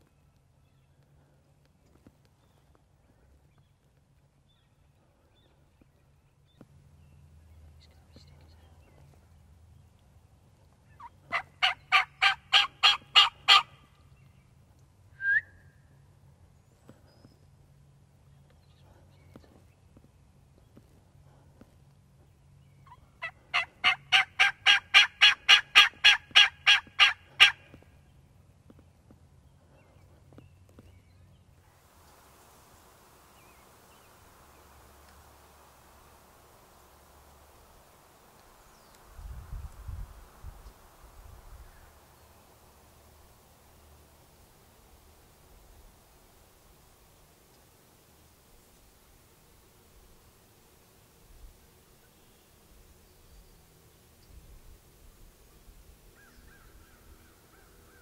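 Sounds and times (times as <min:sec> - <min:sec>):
low steady rumble: 0:00.0 - 0:58.0
turkey yelps: 0:10.9 - 0:13.8, 0:22.9 - 0:27.8
small ticks: 0:35.0 - 0:35.3.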